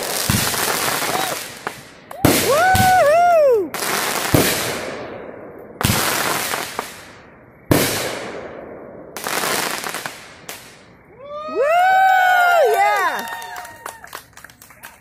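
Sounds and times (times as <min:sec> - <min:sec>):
fireworks booming: 0:00.0 - 0:11.4.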